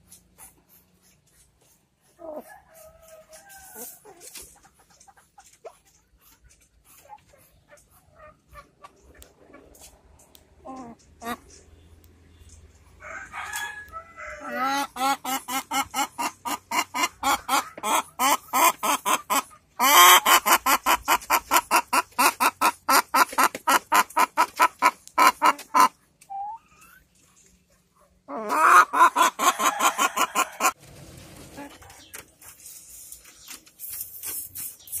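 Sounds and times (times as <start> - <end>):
hen cackling: 10.6 - 11.5, 13.0 - 27.0, 28.3 - 30.8.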